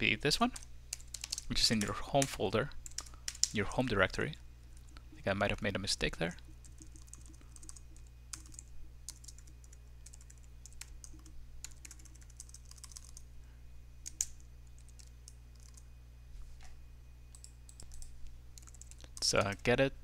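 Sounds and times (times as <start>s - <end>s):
computer keyboard keystrokes: 0.6s - 1.9s, 2.8s - 3.6s, 6.7s - 13.2s, 14.1s - 15.8s, 17.4s - 19.6s.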